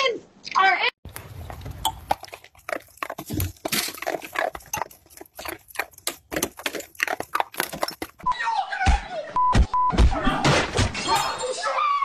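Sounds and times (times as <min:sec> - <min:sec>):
dog crunching icicles: 0:01.2 - 0:08.2.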